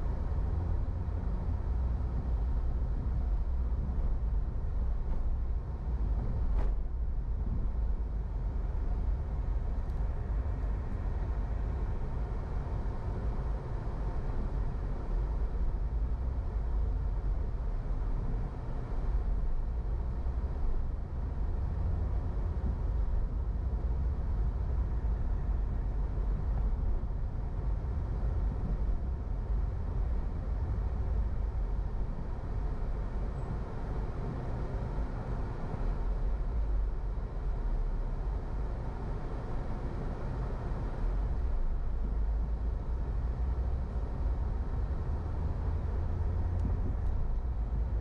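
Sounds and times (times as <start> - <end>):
car engine and road rumble: 0.0 - 48.0.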